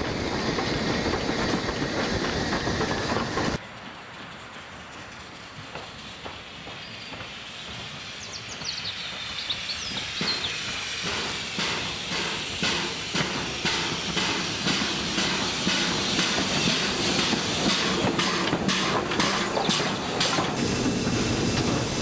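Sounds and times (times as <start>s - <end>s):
rail noise: 0.0s - 22.0s
steam locomotive rhythmic beat: 0.0s - 22.0s.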